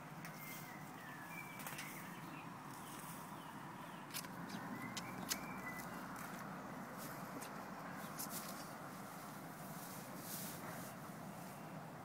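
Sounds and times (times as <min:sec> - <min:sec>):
faint bird chirps: 0:00.3 - 0:06.3
steady background hiss: 0:04.6 - 0:12.0.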